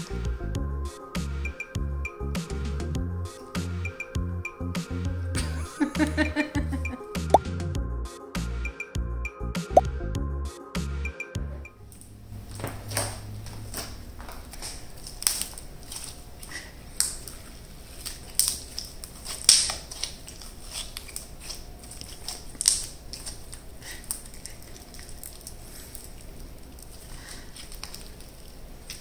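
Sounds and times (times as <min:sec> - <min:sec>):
slime squelching with wet clicks: 0:14.5 - 0:29.0.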